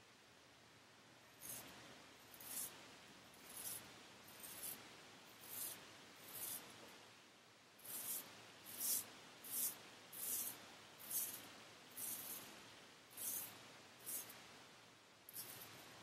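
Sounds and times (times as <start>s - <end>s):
razor scraping stubble: 1.4s - 6.7s, 7.8s - 14.4s, 15.3s - 16.0s.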